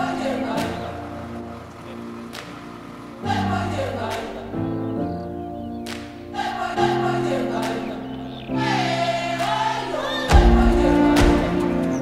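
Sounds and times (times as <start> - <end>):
choir singing over held chords: 0.0 - 12.0.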